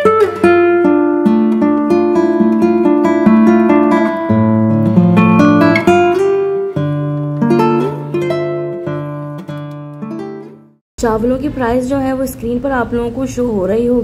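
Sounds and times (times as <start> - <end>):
acoustic guitar melody: 0.0 - 10.8.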